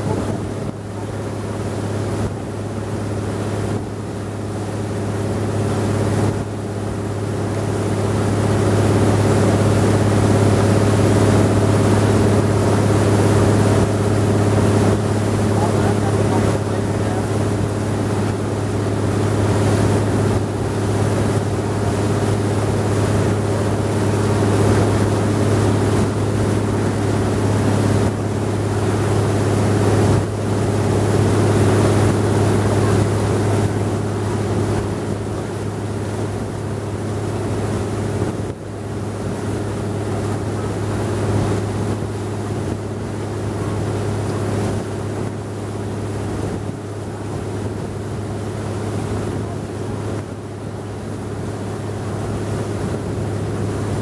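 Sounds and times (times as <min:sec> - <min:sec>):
wind noise on microphone: 0:00.0 - 0:04.1
boat engine droning: 0:00.0 - 0:54.0.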